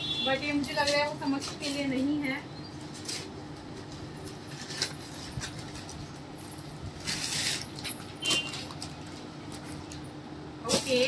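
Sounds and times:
gift packaging rustling and crinkling: 0:02.8 - 0:10.0.

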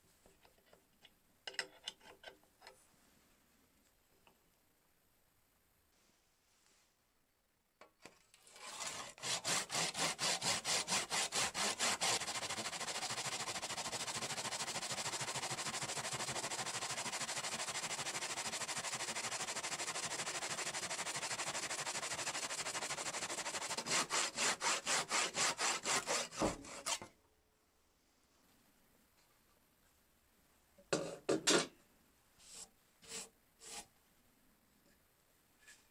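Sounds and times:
hand saw cutting wood: 0:08.4 - 0:27.1.

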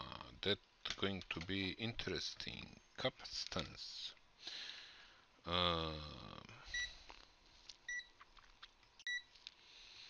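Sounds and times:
man humming low: 0:05.5 - 0:06.6
multimeter key beeps: 0:09.0 - 0:09.3.

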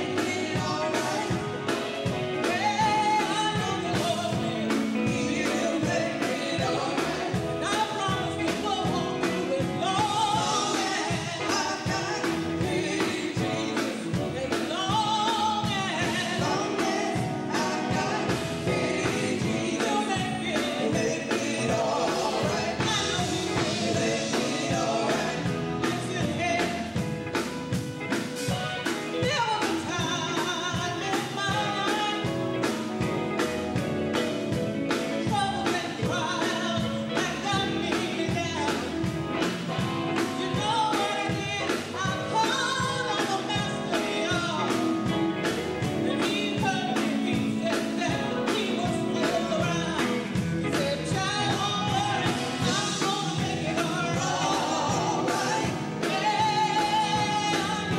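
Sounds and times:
women singing together: 0:00.0 - 0:27.0, 0:40.2 - 0:57.9
drum kit steady beat: 0:00.0 - 0:57.9
electric guitars: 0:00.0 - 0:57.9.

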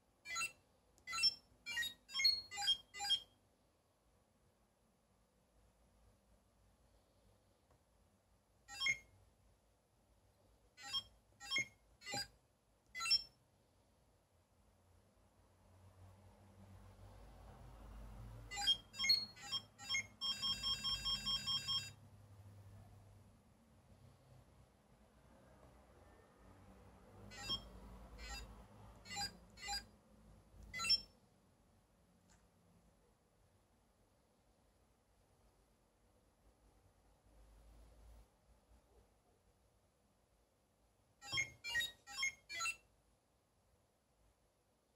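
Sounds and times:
short electronic beeps: 0:00.3 - 0:03.3, 0:08.7 - 0:09.1, 0:13.0 - 0:13.4, 0:18.6 - 0:22.0, 0:27.4 - 0:28.5, 0:30.8 - 0:31.1, 0:41.2 - 0:42.8.

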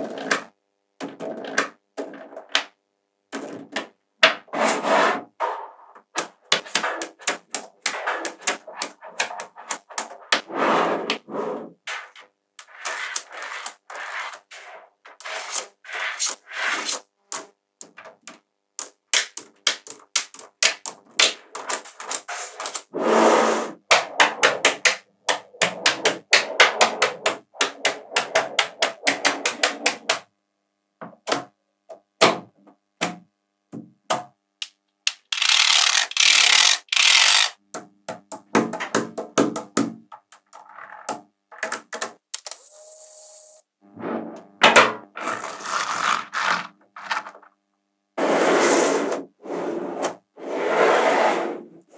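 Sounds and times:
magnetic balls clicking: 0:06.2 - 0:10.4, 0:15.1 - 0:22.8.

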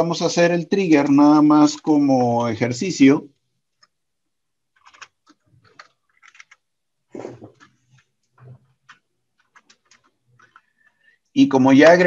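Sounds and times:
computer keyboard typing: 0:04.7 - 0:06.7, 0:07.4 - 0:11.0.

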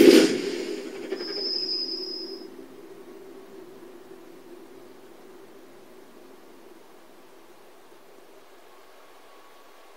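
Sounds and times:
low hum: 0:00.0 - 0:09.9
faint steady hiss: 0:00.1 - 0:09.9.

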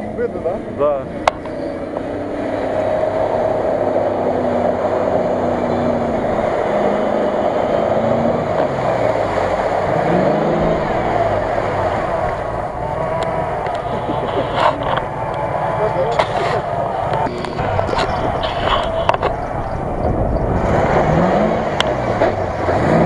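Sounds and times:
car engine revving: 0:00.0 - 0:23.0
water splashing from tyres: 0:06.1 - 0:15.2, 0:15.8 - 0:23.0.

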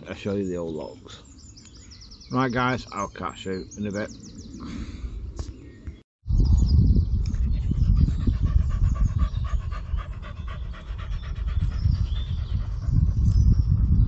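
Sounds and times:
low rumble on microphone: 0:06.3 - 0:14.0
dog panting: 0:07.4 - 0:14.0.

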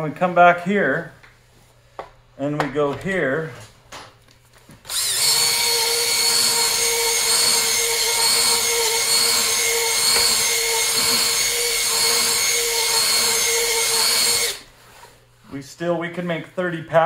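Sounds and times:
drill motor whine: 0:04.9 - 0:14.7.

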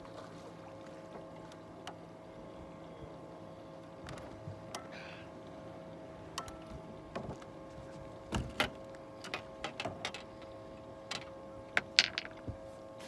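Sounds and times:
faint steady tone: 0:00.0 - 0:04.0.

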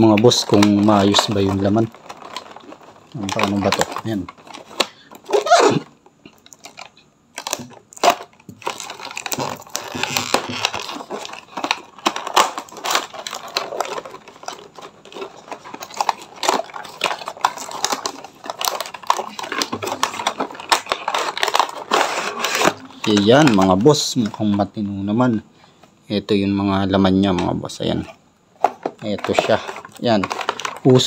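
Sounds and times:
cardboard crinkling rustles: 0:00.0 - 0:24.9, 0:26.9 - 0:31.0.

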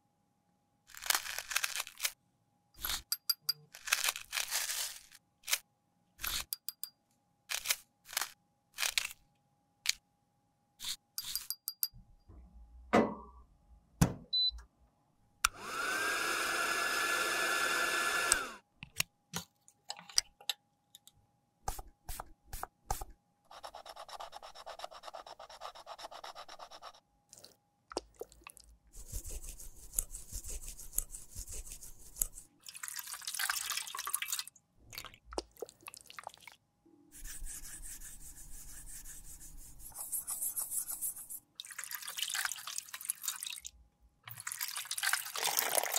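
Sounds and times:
small appliance motor whining: 0:15.5 - 0:18.6.

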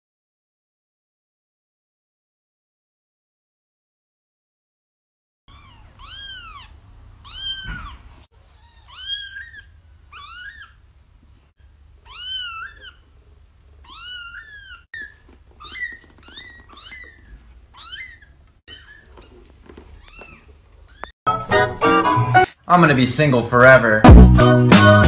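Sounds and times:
kitten meowing: 0:05.5 - 0:10.8, 0:12.0 - 0:13.1, 0:13.8 - 0:21.1.

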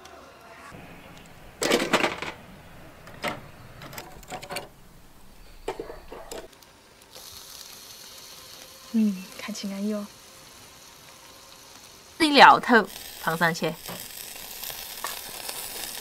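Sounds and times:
high sizzle from grill: 0:05.1 - 0:16.0.

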